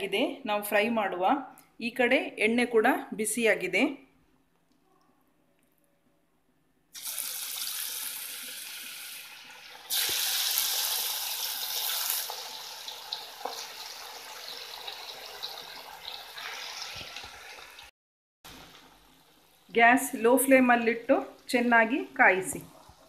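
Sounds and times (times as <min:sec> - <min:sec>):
chicken deep-frying in oil: 0:07.0 - 0:17.9
crackles of frying: 0:07.0 - 0:17.9, 0:18.5 - 0:23.0.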